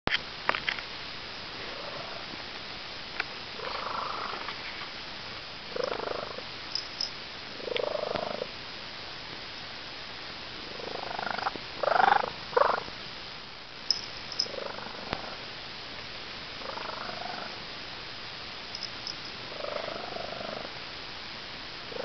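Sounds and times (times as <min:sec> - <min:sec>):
cat purring with chirps: 0:01.6 - 0:02.3, 0:03.4 - 0:04.7, 0:05.6 - 0:08.6, 0:10.6 - 0:13.0, 0:13.9 - 0:15.5, 0:16.5 - 0:17.7, 0:18.6 - 0:20.8.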